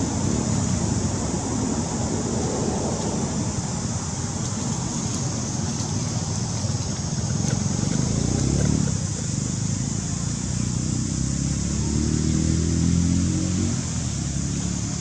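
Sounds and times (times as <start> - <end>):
vehicle engine humming: 0.0 - 15.0.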